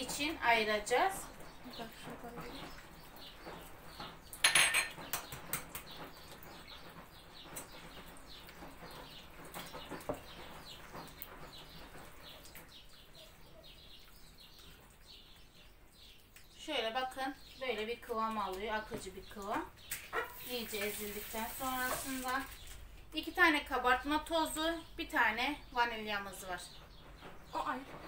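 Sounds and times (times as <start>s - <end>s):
hands squishing wet dough: 5.0s - 16.5s.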